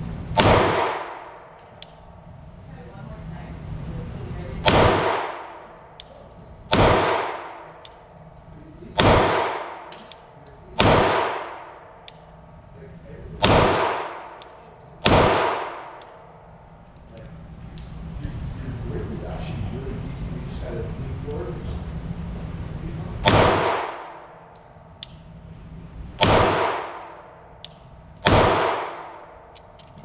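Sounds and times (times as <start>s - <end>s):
pistol shots echoing: 0.3s - 2.1s, 4.6s - 8.2s, 8.9s - 12.4s, 13.4s - 16.5s, 23.2s - 25.2s, 26.2s - 29.6s
brass casings clinking on concrete: 1.0s - 3.0s, 5.3s - 9.0s, 9.6s - 13.4s, 14.0s - 16.8s, 17.7s - 19.1s, 23.8s - 25.4s, 26.8s - 30.0s
gun handling noise: 9.9s - 10.7s.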